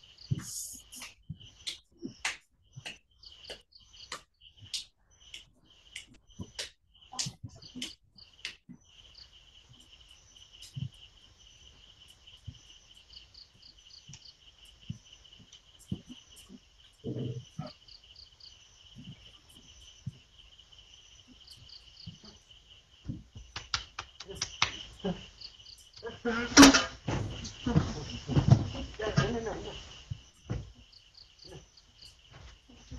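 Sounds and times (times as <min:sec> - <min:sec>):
crickets chirping: 0:00.0 - 0:32.9
sharp clicks and knocks: 0:23.0 - 0:25.2.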